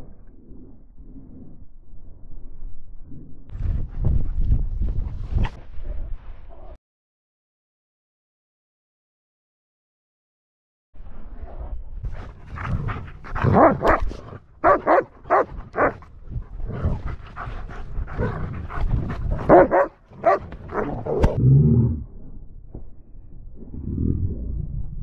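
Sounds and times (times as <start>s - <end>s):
dog growling: 12.2s - 22.0s
dogs barking and yipping: 13.4s - 16.0s, 19.4s - 21.4s.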